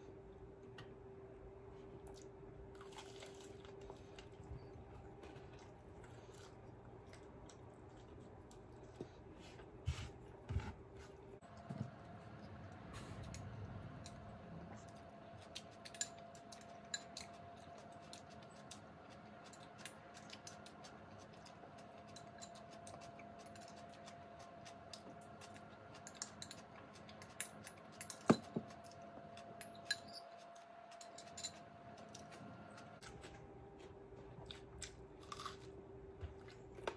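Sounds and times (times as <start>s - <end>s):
chewing and mouth clicks: 2.0s - 9.0s.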